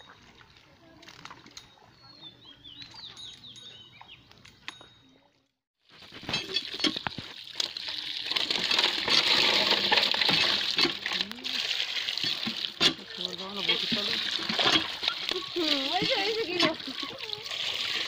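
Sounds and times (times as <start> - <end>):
bird chirps: 1.6 - 5.2
water gushing from pump spout: 5.9 - 18.0.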